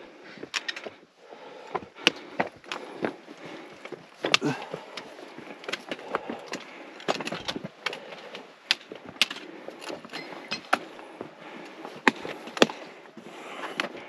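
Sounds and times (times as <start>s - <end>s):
boots and gear knocking on rock: 11.9s - 12.9s.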